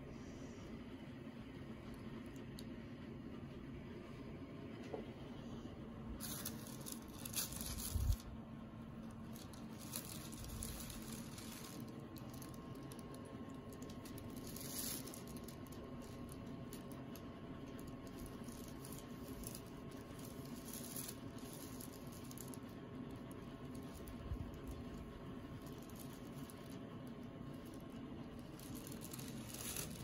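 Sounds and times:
tissue paper rustling and crinkling: 6.1s - 30.0s.

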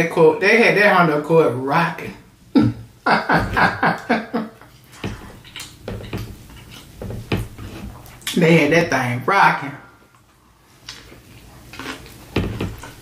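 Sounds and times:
woman laughing: 2.6s - 4.7s.

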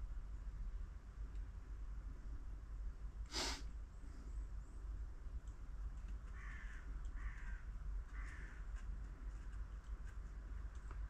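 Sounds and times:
low mains hum: 0.0s - 11.0s
brief hiss: 3.3s - 3.7s
crow cawing: 6.3s - 8.6s.

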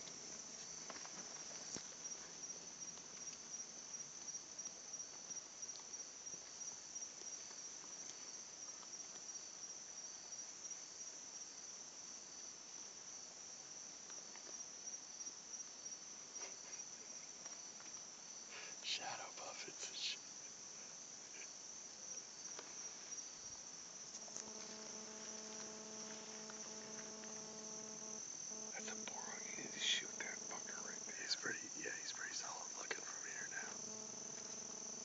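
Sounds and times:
crickets trilling: 0.0s - 35.0s
faint ticks: 2.9s - 3.6s, 4.2s - 6.6s, 7.2s - 9.3s, 24.1s - 35.0s.

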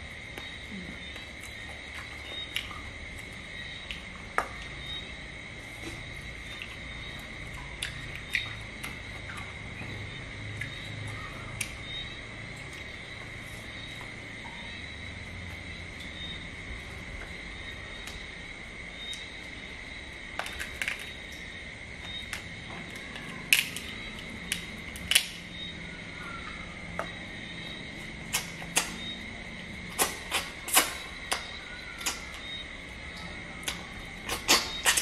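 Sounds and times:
faint high-pitched hum: 0.0s - 35.0s
crab shells cracking: 20.4s - 21.1s, 23.0s - 25.4s.

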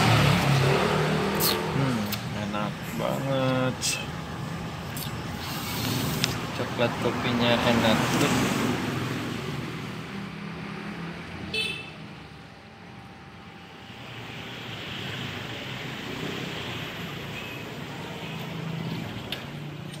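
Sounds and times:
street traffic: 0.0s - 20.0s.

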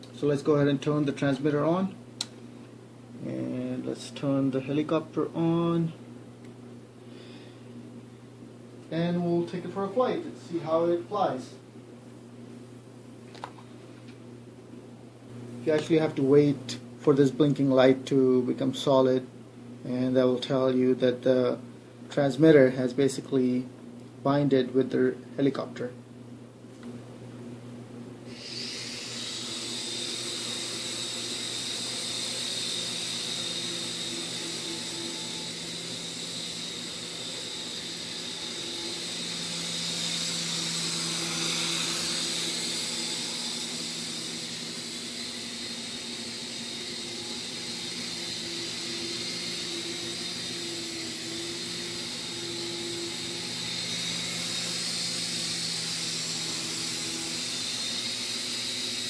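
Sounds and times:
small rotor motors whining: 28.3s - 59.0s.

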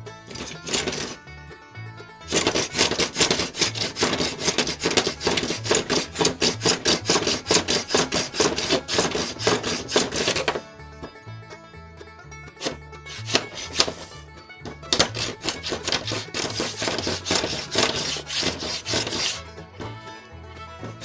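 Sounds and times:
background music: 0.0s - 21.0s
hand plane scraping wood: 0.3s - 1.2s, 2.2s - 10.7s, 12.6s - 19.9s.

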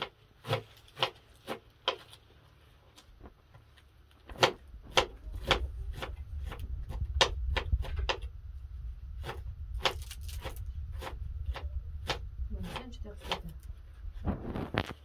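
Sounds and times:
leafy greens snapping and rustling: 0.0s - 6.6s, 9.8s - 12.2s
low steady rumble: 0.2s - 15.0s.

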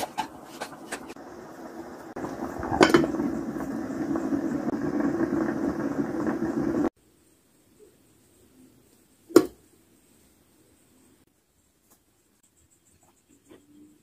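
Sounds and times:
pot bubbling: 0.0s - 7.0s.

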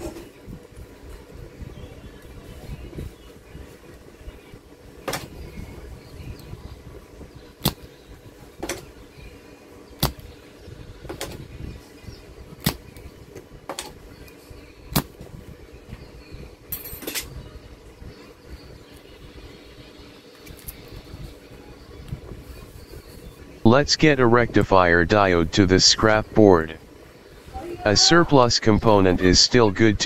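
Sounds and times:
desoldering pump snapping: 7.6s - 7.9s, 10.0s - 10.3s, 12.6s - 13.1s.

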